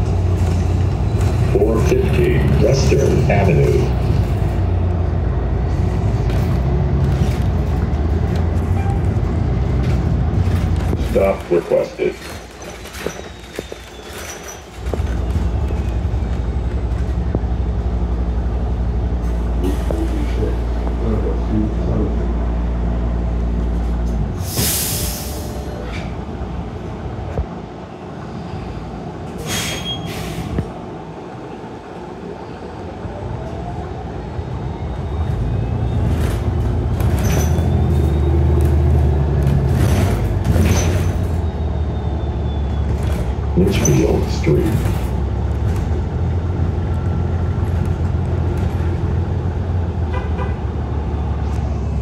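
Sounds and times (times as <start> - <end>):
bus engine humming: 0.0 - 52.0
air brakes hissing: 24.4 - 26.1, 29.4 - 30.6.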